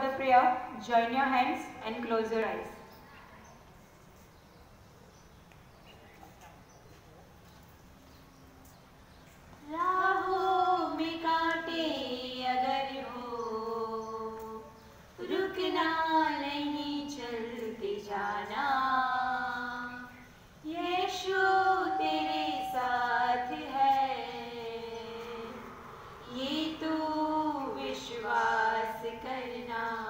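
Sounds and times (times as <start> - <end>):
women singing unaccompanied: 9.6 - 30.0.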